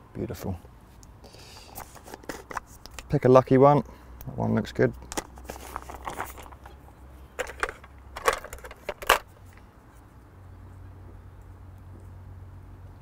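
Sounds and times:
plastic pot rustling and rattling: 1.6s - 3.2s, 5.0s - 9.6s.

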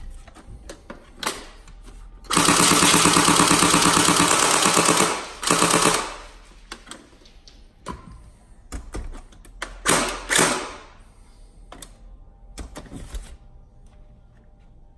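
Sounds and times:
airsoft gun full-auto burst: 2.3s - 6.3s.

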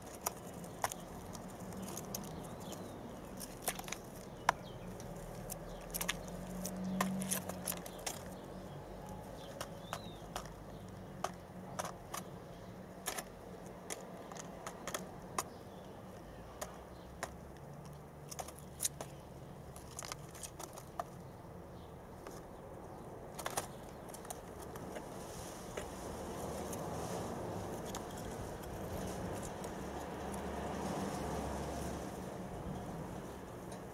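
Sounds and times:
doves clicking and scratching: 0.0s - 33.9s
feathers rustling: 25.0s - 32.2s.

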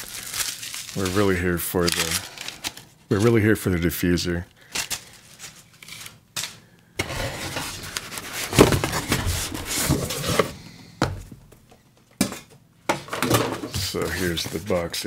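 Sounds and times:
cardboard boxes rustling and scraping: 7.0s - 11.4s, 13.8s - 15.0s.

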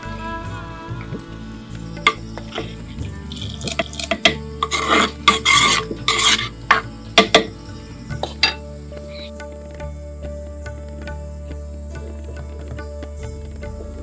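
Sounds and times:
wooden ladle stirring in clay pot: 2.0s - 9.3s.

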